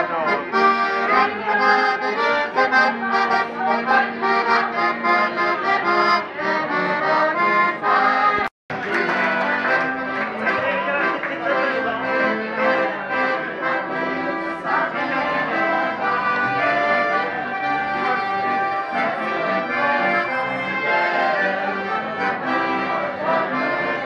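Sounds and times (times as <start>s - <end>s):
accordion playing a tune: 0.0s - 24.0s.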